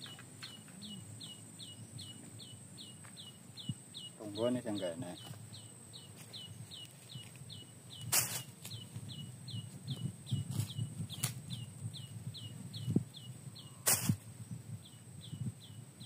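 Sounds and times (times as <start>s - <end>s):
sharp swishes: 13.9s - 14.2s.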